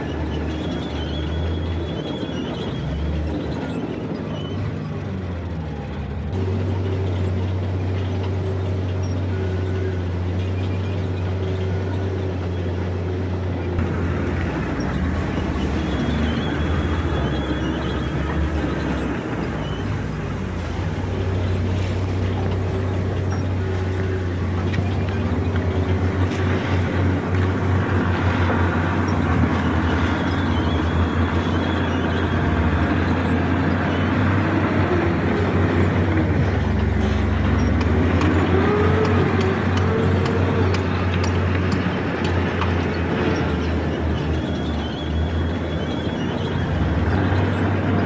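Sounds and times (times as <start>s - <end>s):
bulldozer diesel engine running: 0.0s - 48.0s.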